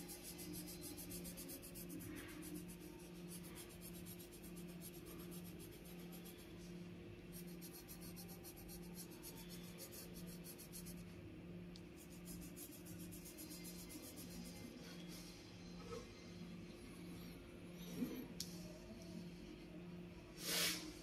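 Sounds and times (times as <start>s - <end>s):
pencil scratching on paper: 0.0s - 6.5s, 7.3s - 11.0s, 12.0s - 14.8s
steady low hum: 0.0s - 20.3s.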